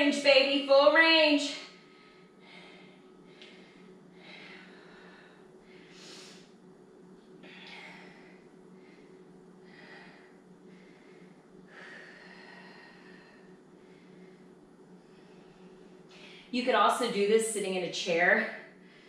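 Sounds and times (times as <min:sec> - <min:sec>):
faint steady hum: 0:00.0 - 0:19.0
woman breathing hard: 0:01.6 - 0:06.7, 0:07.4 - 0:16.6.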